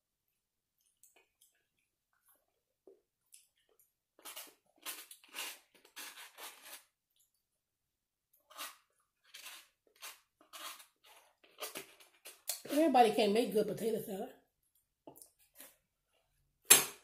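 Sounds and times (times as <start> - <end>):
close-up eating sounds: 0.7 - 7.5, 8.4 - 12.9.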